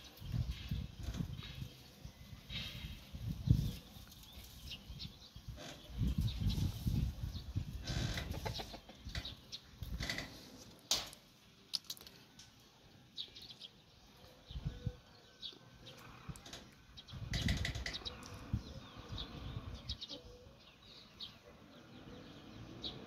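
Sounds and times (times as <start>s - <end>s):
chickens scratching and pecking ground: 0.0s - 12.7s
chickens clucking and peeping: 0.1s - 11.0s, 12.4s - 23.0s.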